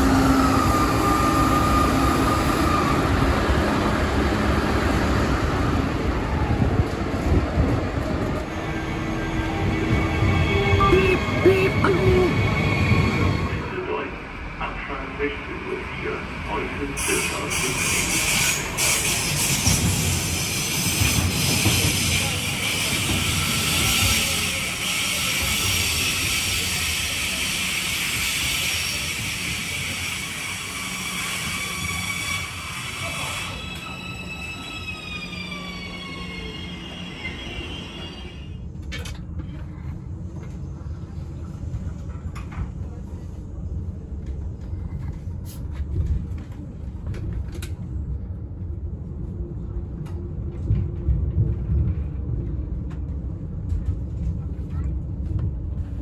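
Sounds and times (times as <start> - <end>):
electric train whining: 0.0 - 6.7
train rumble on board: 0.0 - 56.0.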